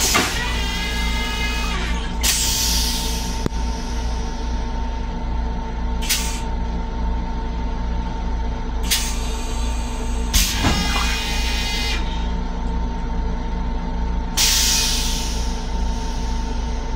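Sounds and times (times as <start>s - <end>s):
train low rumble and hum: 0.0s - 16.9s
short air hisses: 2.2s - 3.4s, 6.0s - 6.5s, 14.4s - 16.5s.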